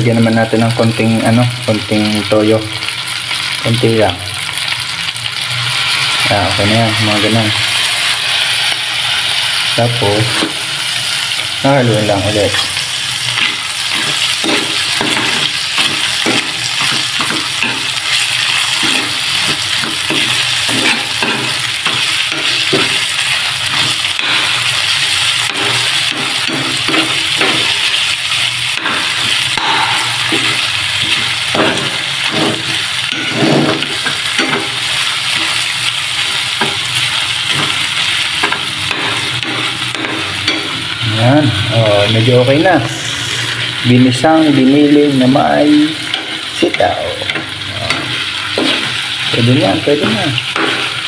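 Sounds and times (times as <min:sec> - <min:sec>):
food sizzling in frying pan: 0:00.0 - 0:51.0
spatula scraping pan: 0:12.3 - 0:41.0.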